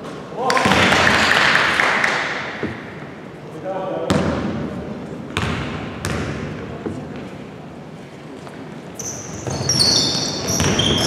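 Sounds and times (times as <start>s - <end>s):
basketball bouncing on hardwood: 2.6s - 3.0s, 5.4s - 7.2s
sneakers squeaking on floor: 8.4s - 11.0s.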